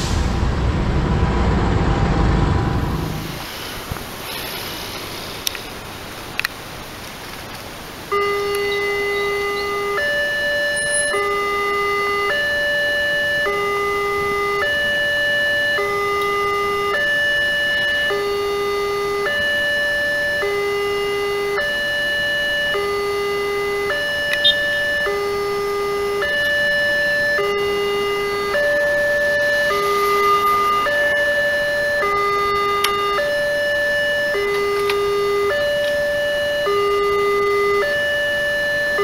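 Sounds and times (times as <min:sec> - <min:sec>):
level crossing two-tone chime: 0:10.7 - 0:11.3.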